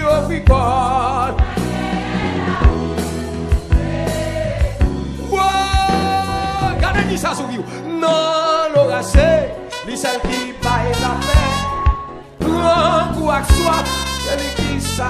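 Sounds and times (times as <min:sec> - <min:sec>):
gospel singing: 0:00.0 - 0:15.0
instrumental backing: 0:00.0 - 0:15.0
drum hits: 0:01.3 - 0:07.0.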